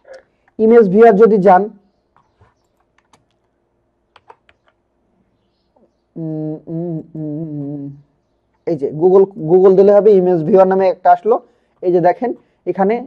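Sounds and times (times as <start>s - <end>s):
computer keyboard keystrokes: 2.7s - 3.4s, 4.2s - 4.8s.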